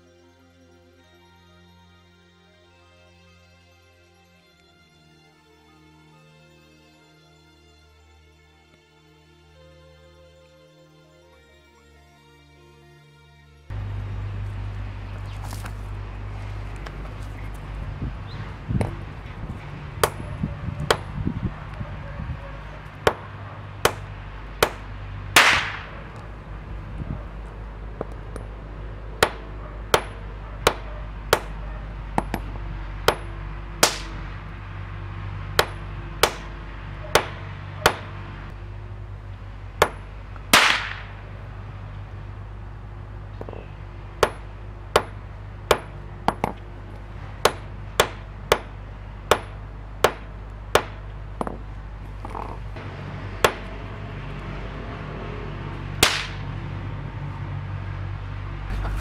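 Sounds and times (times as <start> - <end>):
sledgehammer sharp cracks: 25.4 - 26.0, 33.8 - 34.2, 35.6 - 36.5, 39.8 - 41.2, 56.0 - 56.5.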